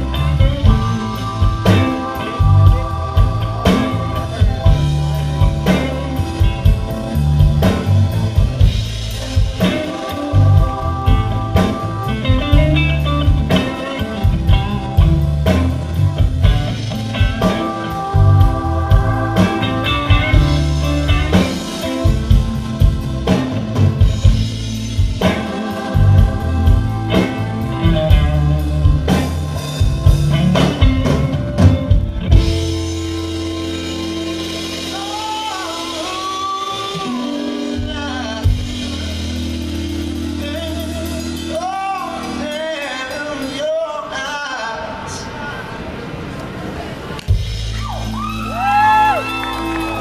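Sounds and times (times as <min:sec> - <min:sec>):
man singing drawn-out notes: 0:00.0 - 0:07.2
blues-rock band playing: 0:00.0 - 0:43.8, 0:47.2 - 0:50.0.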